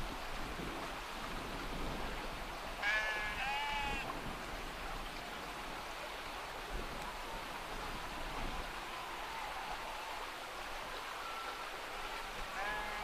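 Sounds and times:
sheep bleating: 2.8 - 4.0, 12.6 - 13.0.

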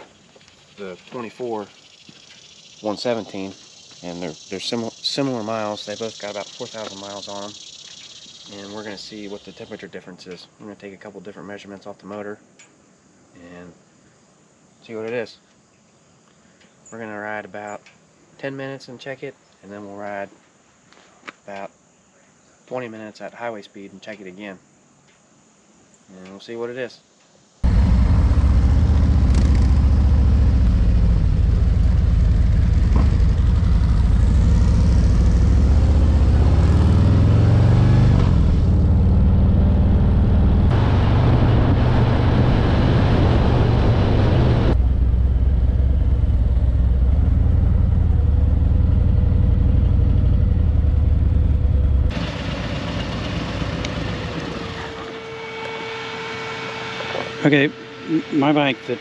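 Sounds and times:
motorcycle engine accelerating: 27.6 - 55.1
wind rush: 40.7 - 44.8.

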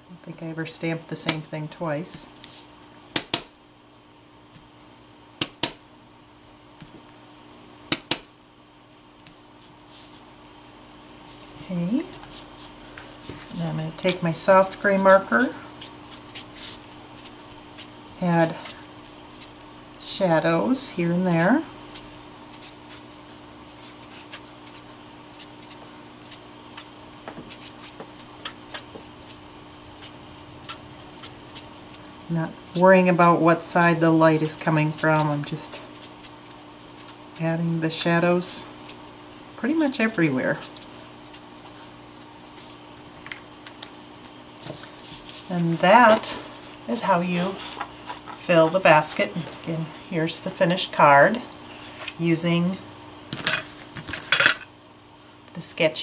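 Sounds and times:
steady low hum: 0.0 - 56.0
brush marker scratching on card: 14.0 - 19.6, 21.3 - 26.9, 30.0 - 32.0.

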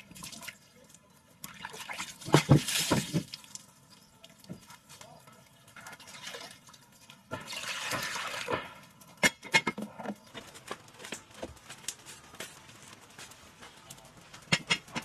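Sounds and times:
water splashing into metal pot: 1.4 - 3.6, 7.3 - 8.7
metal pot knocks and clatters: 7.3 - 10.3, 14.5 - 15.0.

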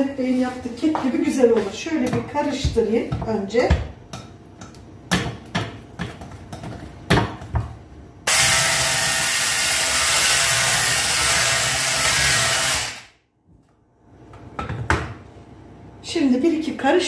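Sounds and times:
electric hand mixer motor: 8.3 - 13.1.

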